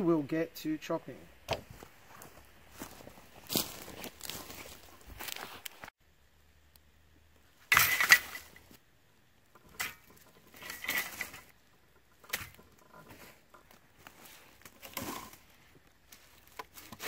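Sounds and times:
metal saw clattering on leaves: 7.7 - 8.6, 9.6 - 11.5, 14.7 - 15.4.

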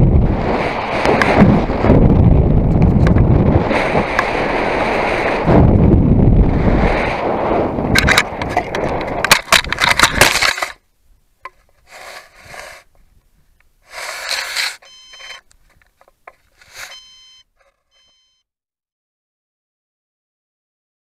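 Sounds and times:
rocket scraping and knocking on ground: 0.2 - 10.8
short bursts of noise: 13.8 - 18.4
short electronic beeps: 14.7 - 15.4, 16.7 - 18.4.

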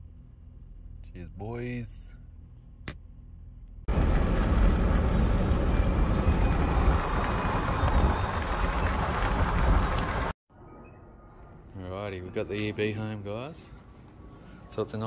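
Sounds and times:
low cabin hum: 2.4 - 10.3
tyre and wind noise: 3.9 - 10.3.

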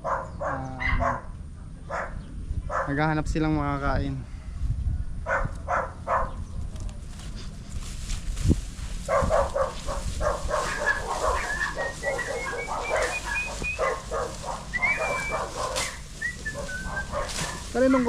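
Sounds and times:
dog barking: 0.0 - 1.3, 1.9 - 3.0, 5.3 - 6.4, 9.1 - 18.0
high whistle-like calls: 10.8 - 17.6.

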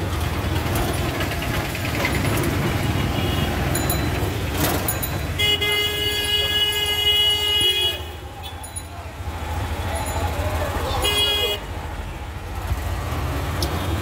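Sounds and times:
auto-rickshaw engine: 0.0 - 14.0
street traffic rumble: 0.0 - 14.0
vehicle horn blast: 5.4 - 8.2, 11.0 - 11.7.

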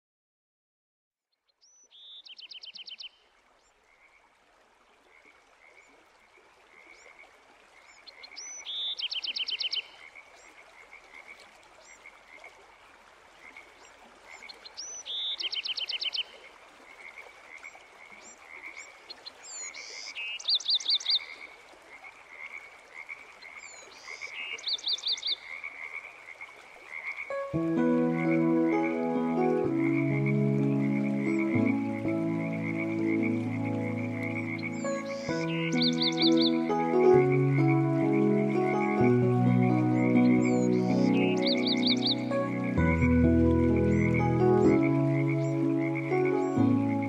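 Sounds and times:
frogs pulsed calls: 13.4 - 47.0
frog chirp: 29.7 - 37.8.

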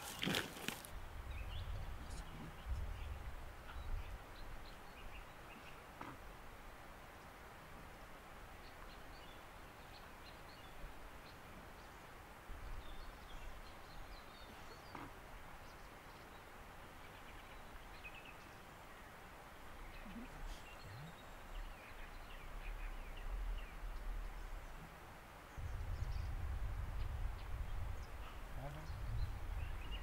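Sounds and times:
steady background hiss: 0.0 - 30.0
faint bird chirps: 19.8 - 26.4
low rumbles: 25.5 - 30.0.

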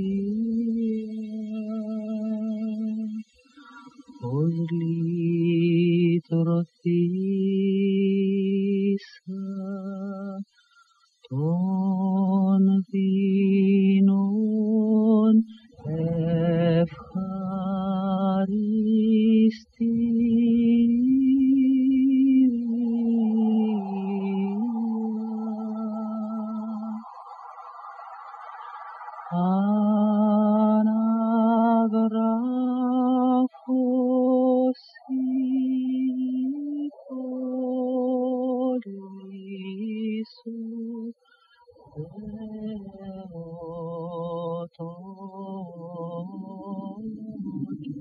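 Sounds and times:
person singing chant-like notes: 0.0 - 48.0
breaths between notes: 3.4 - 4.1, 10.5 - 11.1, 41.2 - 41.8.

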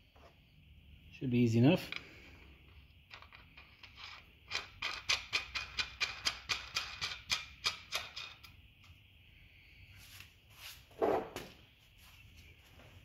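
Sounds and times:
nut spinning metallic clicks: 2.7 - 9.0.

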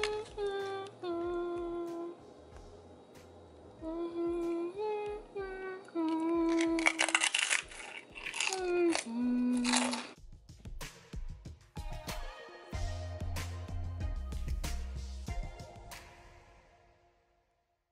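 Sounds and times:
woman humming: 0.0 - 2.3, 3.8 - 7.2, 8.4 - 10.2
chips crunching: 6.1 - 10.2.

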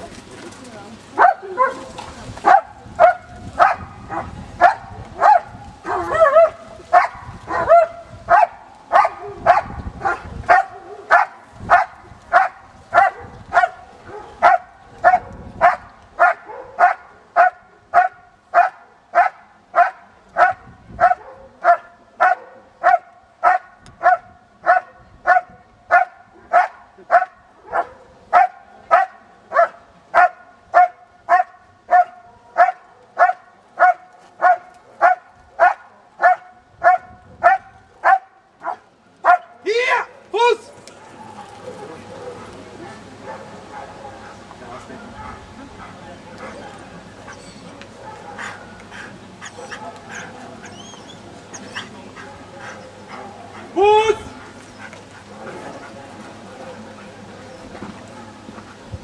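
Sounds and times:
dog barking loudly: 2.5 - 40.1.

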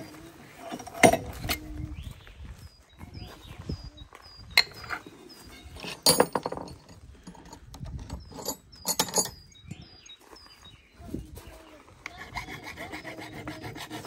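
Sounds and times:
hand tools clicking and knocking: 0.7 - 1.7, 4.6 - 9.5.

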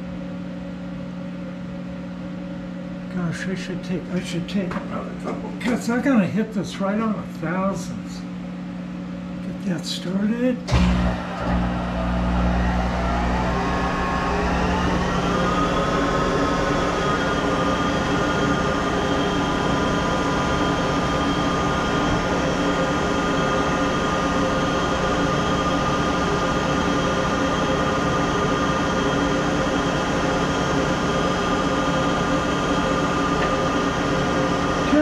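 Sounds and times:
lathe motor whining and humming: 10.7 - 35.0.

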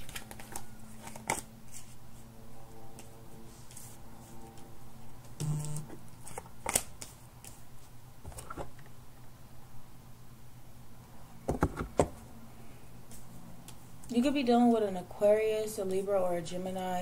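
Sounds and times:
cards tapping and rustling: 0.0 - 1.9, 6.2 - 7.6
steady low hum: 0.0 - 17.0.

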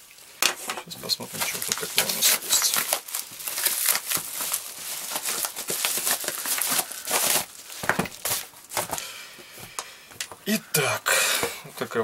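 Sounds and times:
paper mailer crinkling: 1.1 - 9.0.

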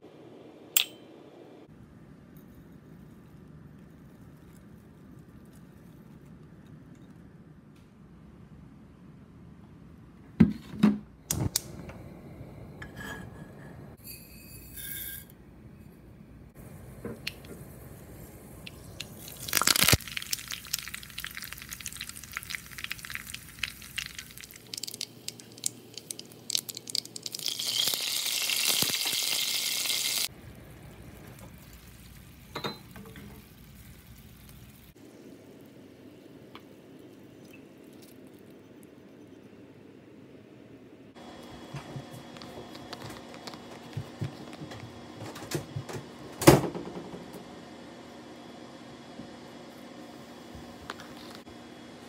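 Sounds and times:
seeds sizzling in hot oil: 16.6 - 35.3.

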